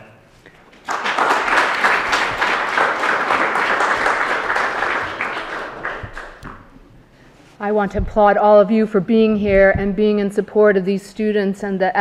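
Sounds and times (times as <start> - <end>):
audience applauding: 0.6 - 6.8.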